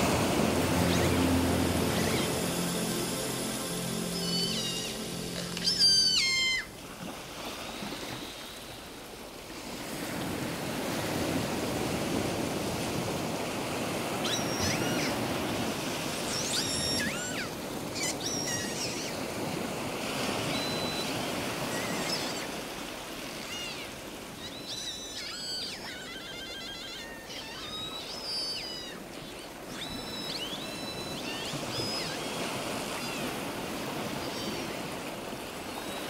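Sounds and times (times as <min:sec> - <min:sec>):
seagulls calling: 0:00.0 - 0:06.8, 0:14.1 - 0:22.6, 0:23.4 - 0:36.0
waves breaking on beach: 0:00.0 - 0:36.0.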